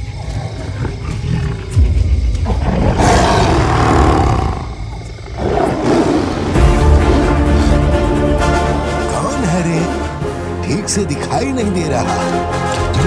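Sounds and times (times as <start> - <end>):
low music rumble: 0.0 - 5.3
tiger roaring: 0.0 - 7.9.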